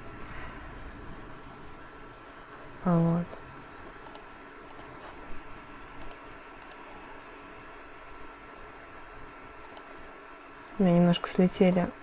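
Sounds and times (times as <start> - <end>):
low room hiss: 0.0 - 12.0
computer mouse clicks: 4.0 - 4.9, 6.0 - 6.9, 9.6 - 9.9.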